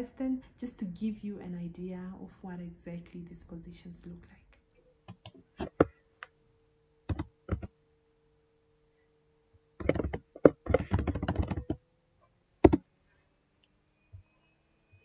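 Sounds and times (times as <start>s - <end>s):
keyboard typing: 7.1s - 7.7s, 9.8s - 11.8s, 12.6s - 12.8s.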